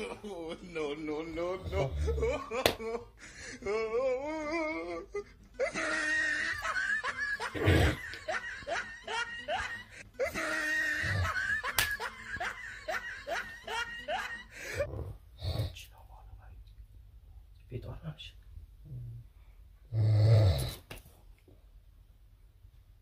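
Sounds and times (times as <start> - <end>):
sing-song vocal sound: 0.0 - 6.0
person laughing in giggles: 2.0 - 14.9.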